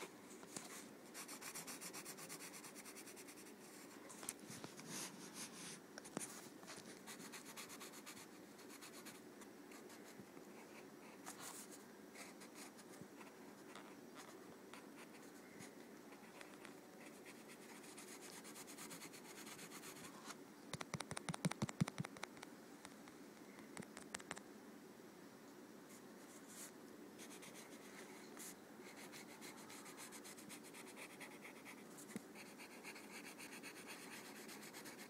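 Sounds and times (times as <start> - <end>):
drawing tool scratching paper: 32.4 - 35.0.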